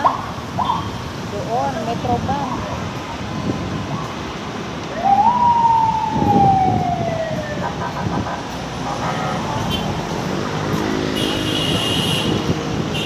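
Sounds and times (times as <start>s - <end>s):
city traffic noise: 0.0s - 13.0s
siren wail: 4.9s - 8.4s.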